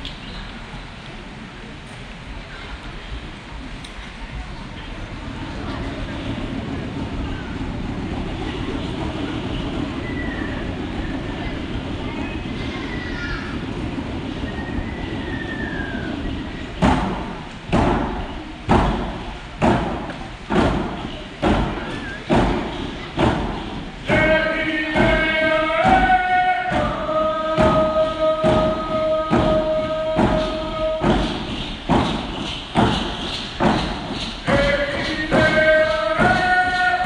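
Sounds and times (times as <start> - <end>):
drum beaten steadily: 15.7 - 37.0
group singing long notes: 24.0 - 32.2, 34.1 - 37.0.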